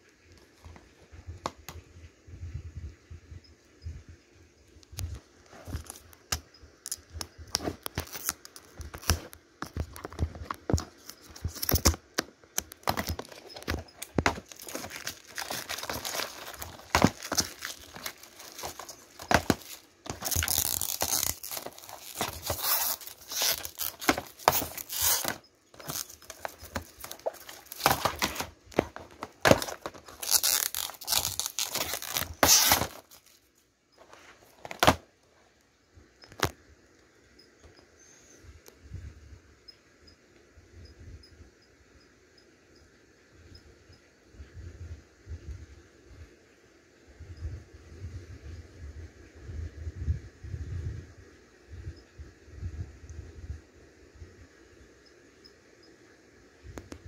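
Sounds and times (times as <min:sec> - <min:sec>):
plastic wrap crinkling and tearing: 0:07.8 - 0:12.0, 0:12.6 - 0:33.4
plastic cases clicking and knocking: 0:08.8 - 0:33.2, 0:34.5 - 0:35.0.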